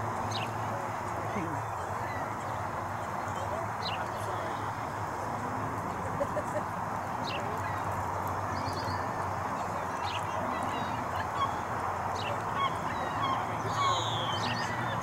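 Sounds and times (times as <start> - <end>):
ducks whistled calls: 10.7 - 15.0.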